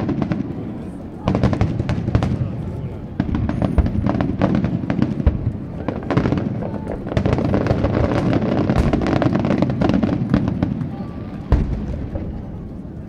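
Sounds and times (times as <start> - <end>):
firework shells booming: 0.0 - 13.0.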